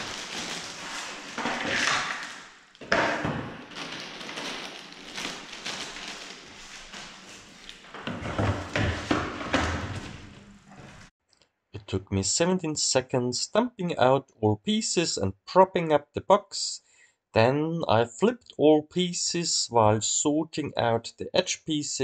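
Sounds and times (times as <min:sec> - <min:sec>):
plastic bag rustling: 0:00.0 - 0:11.1.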